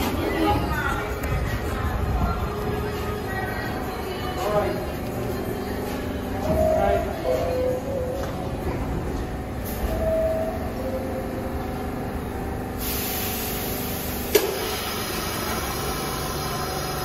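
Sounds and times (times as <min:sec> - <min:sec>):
subway train rumbling: 0:00.0 - 0:17.0
brake squeal: 0:06.3 - 0:14.0
air brakes hissing: 0:09.6 - 0:10.5, 0:12.7 - 0:17.0
sharp clack: 0:14.3 - 0:14.7.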